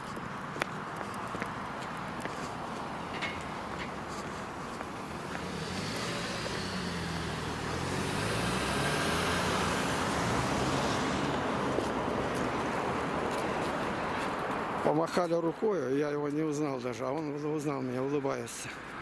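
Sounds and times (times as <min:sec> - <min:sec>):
street traffic: 0:00.0 - 0:19.0
car driving past: 0:05.0 - 0:14.0.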